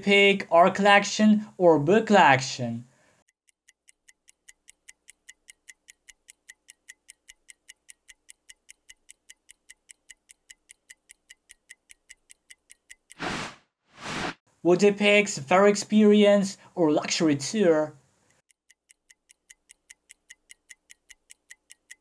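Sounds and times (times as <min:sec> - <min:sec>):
clock ticking timer: 0:03.3 - 0:13.2, 0:18.3 - 0:22.0.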